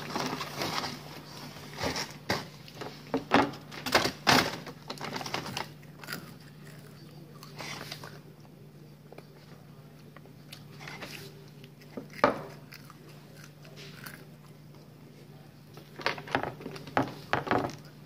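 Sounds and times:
paper bag rustling: 0:00.0 - 0:03.0.

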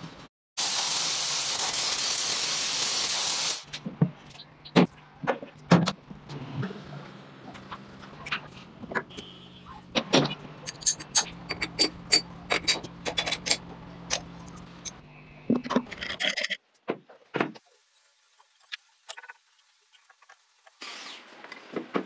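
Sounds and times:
metal parts clinking: 0:10.6 - 0:15.0.

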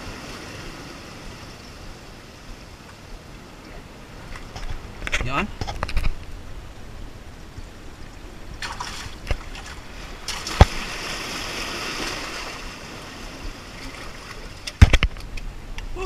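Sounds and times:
sea water surging through rocks: 0:00.0 - 0:04.3, 0:06.8 - 0:15.1.

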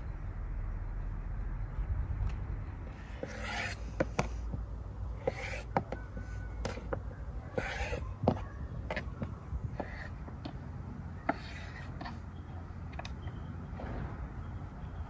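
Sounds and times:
low steady rumble: 0:00.0 - 0:05.3.

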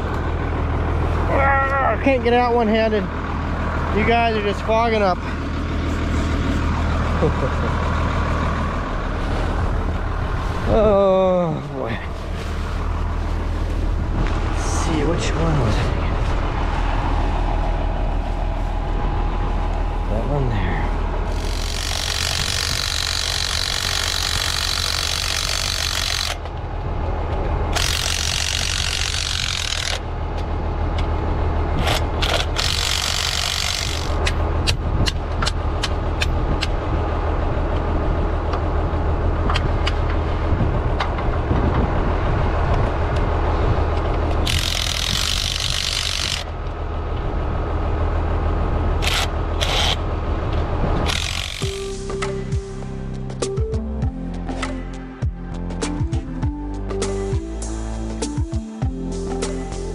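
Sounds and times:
tractor engine idling: 0:00.0 - 0:59.9
impact wrench bursts: 0:21.3 - 0:26.4, 0:27.7 - 0:30.0, 0:31.8 - 0:34.3, 0:44.4 - 0:46.5, 0:49.0 - 0:50.0, 0:51.0 - 0:52.0.

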